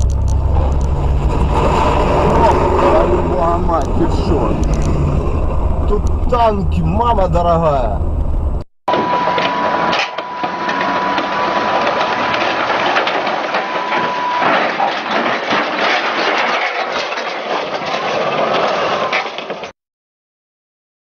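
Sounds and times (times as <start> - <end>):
steady high whine: 0.0 - 15.2
tank engine and tracks clattering: 0.0 - 19.7.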